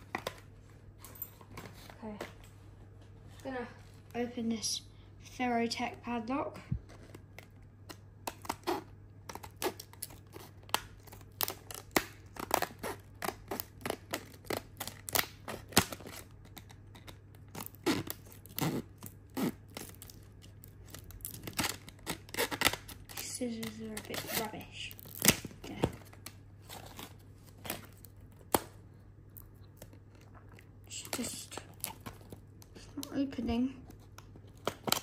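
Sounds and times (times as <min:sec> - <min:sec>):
scissors cutting hard plastic: 0:08.2 - 0:26.1.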